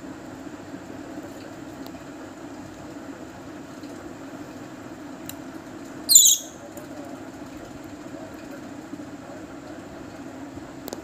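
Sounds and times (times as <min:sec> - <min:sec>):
parrot chick squeaking: 0:06.1 - 0:06.6.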